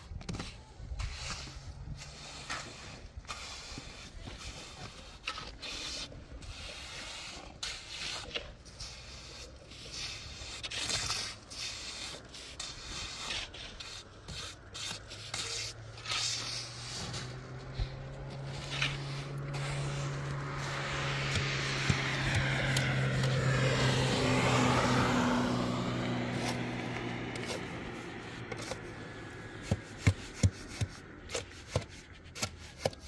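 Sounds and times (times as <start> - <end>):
trowel scraping wet concrete: 0.0 - 33.0
low engine hum: 8.2 - 32.2.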